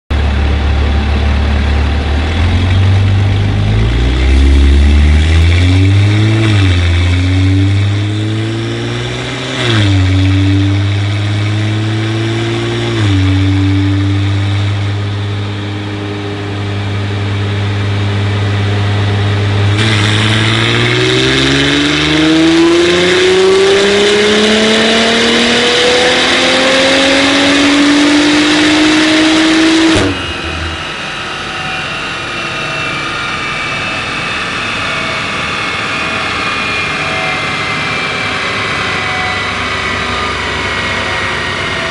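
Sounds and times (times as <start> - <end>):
car engine revving: 0.1 - 41.9
turbo rushing noise: 12.6 - 24.4, 28.6 - 41.9.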